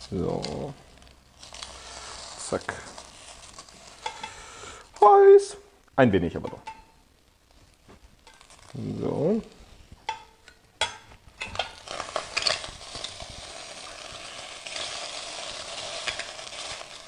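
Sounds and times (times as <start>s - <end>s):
sausages sizzling in a pot: 0.0s - 5.6s, 7.0s - 17.0s
metal spatula scraping a pot: 1.5s - 4.4s, 10.1s - 17.0s.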